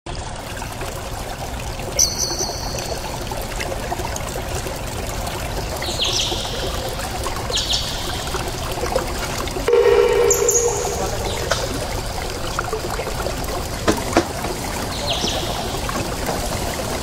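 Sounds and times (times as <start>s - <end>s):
river trickling and rushing: 0.1s - 17.0s
high-pitched bird calls: 2.0s - 3.2s, 5.8s - 6.9s, 7.5s - 8.4s, 9.7s - 12.0s.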